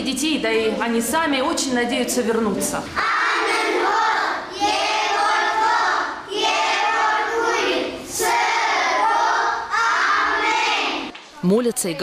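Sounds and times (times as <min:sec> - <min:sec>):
children singing in unison: 0:03.0 - 0:11.1.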